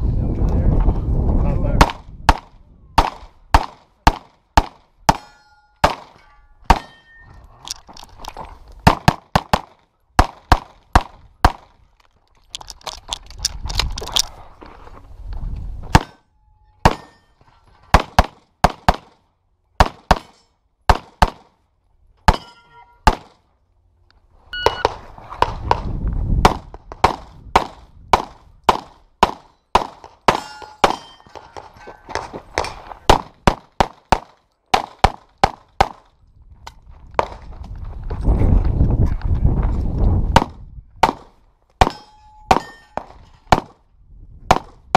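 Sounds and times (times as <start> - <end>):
handgun shots: 1.8 - 7.0
steel targets pinging: 5.1 - 7.4, 15.9 - 17.4, 22.2 - 23.1, 29.5 - 32.8, 41.8 - 43.2.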